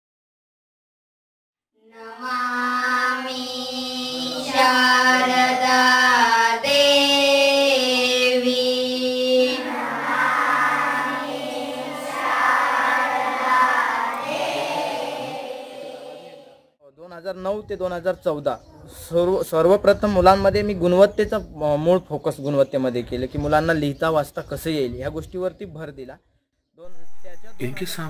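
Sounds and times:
children singing in unison: 1.8 - 16.6.

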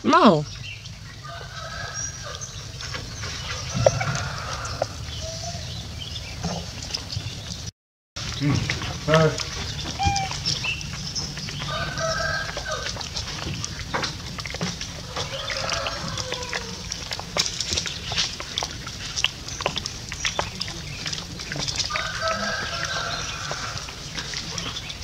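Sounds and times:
macaque cries: 10.0 - 10.4.

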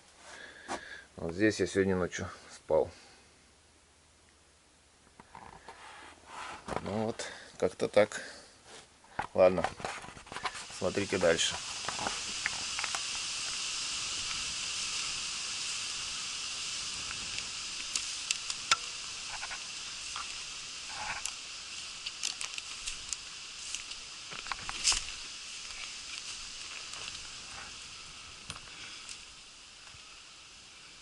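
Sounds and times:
wind in trees: 9.8 - 31.0.

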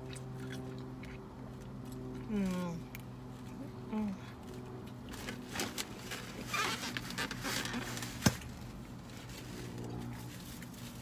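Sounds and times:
chewing and wet mouth noises: 0.0 - 5.2.

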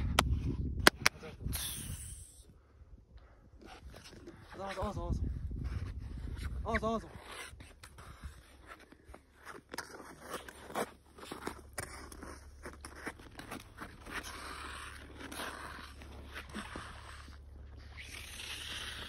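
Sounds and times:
ice skates scraping on ice: 3.6 - 4.9, 5.6 - 19.0
steady low hum: 9.2 - 19.0.

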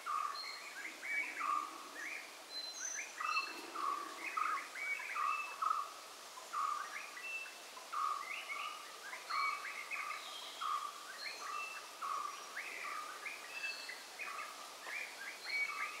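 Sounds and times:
birds chirping: 0.0 - 5.9
faint background hiss: 0.0 - 16.0.

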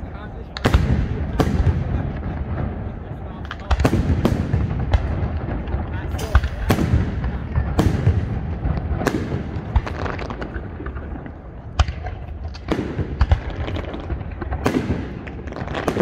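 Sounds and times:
firework bangs: 0.0 - 16.0
fireworks crackling: 0.0 - 16.0.

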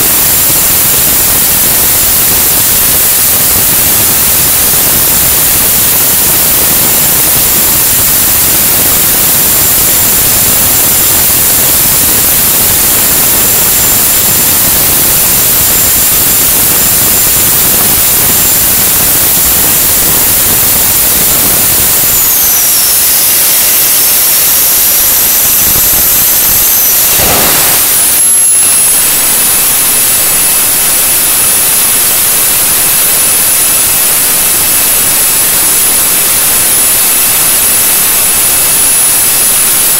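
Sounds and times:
high turbine whine: 0.0 - 39.9
afterburner burst: 8.0 - 31.0
jet engine rushing noise: 14.6 - 30.2.

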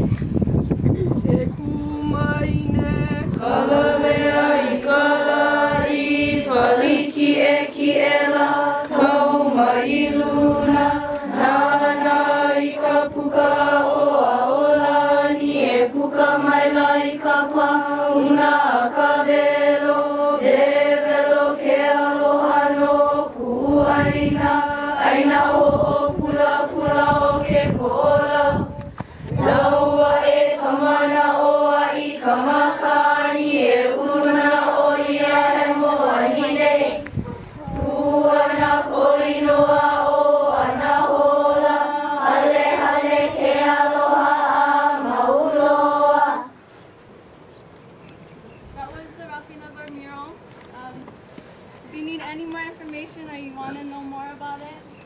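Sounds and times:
young voices chanting in unison: 1.9 - 46.6.

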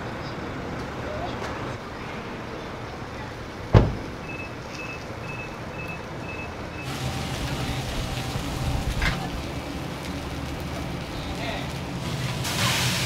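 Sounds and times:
short electronic beeps: 4.2 - 6.9
steady hiss: 6.8 - 13.0.

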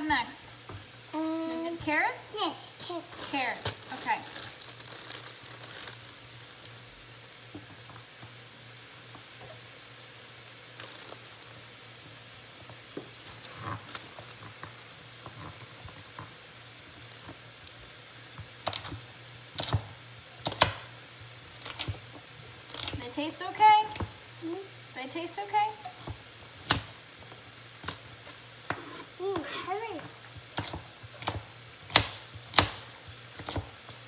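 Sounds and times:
chicken sizzling in frying pan: 0.1 - 34.0
knife chopping carrots on board: 30.6 - 33.8.

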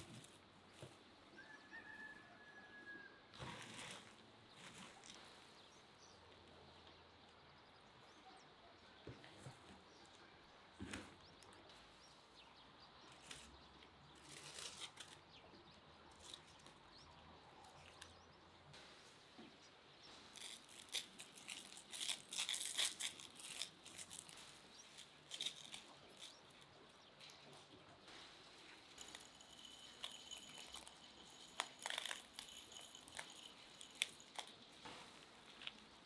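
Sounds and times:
dry leaves and cabbage rustling: 13.1 - 15.3, 20.1 - 36.0.

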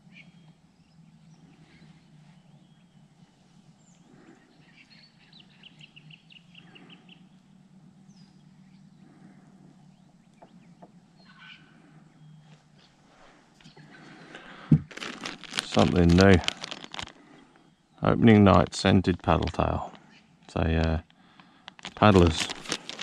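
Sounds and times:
faint bird chirps: 0.0 - 13.0
low steady hum: 0.0 - 23.0.

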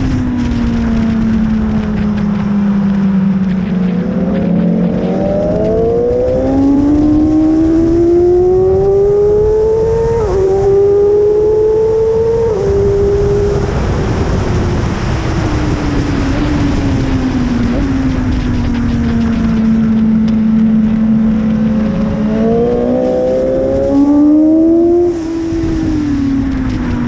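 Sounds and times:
motorcycle engine revving: 0.0 - 27.0
wind rush: 0.0 - 27.0.

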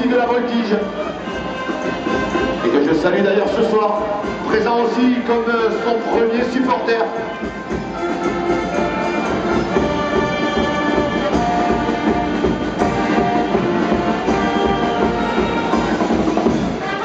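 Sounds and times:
brass band playing: 0.0 - 17.0.

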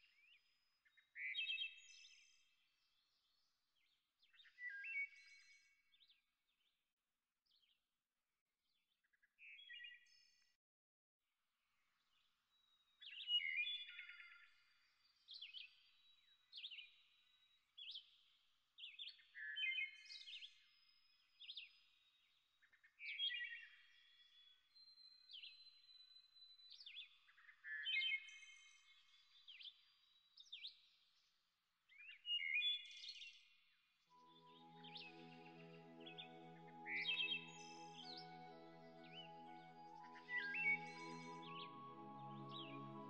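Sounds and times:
birds chirping: 34.2 - 43.0.

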